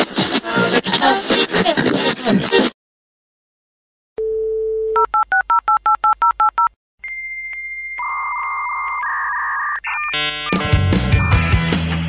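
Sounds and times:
dial tone: 7.3s - 10.6s.

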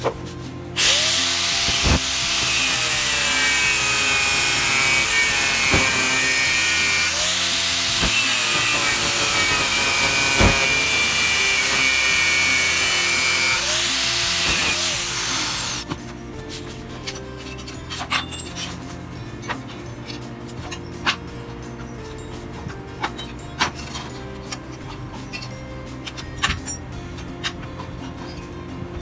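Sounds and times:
power tool harsh hiss: 0.8s - 15.8s.

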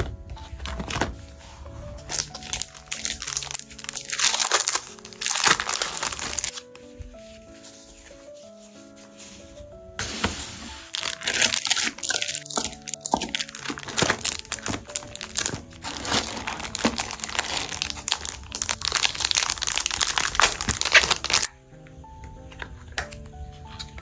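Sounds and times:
plastic packaging crinkling: 2.0s - 6.7s, 10.0s - 21.5s.

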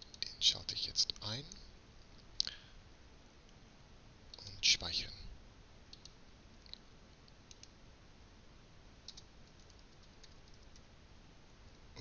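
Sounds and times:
room tone hiss: 0.0s - 12.0s
computer mouse and keyboard clicks: 5.9s - 7.8s, 9.0s - 10.9s.

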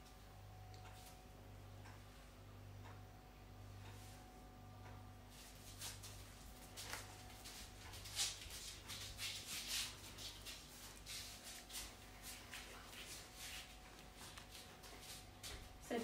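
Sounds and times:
faint steady hum: 0.0s - 16.0s
shuffling footsteps on laminate floor: 5.4s - 16.0s.

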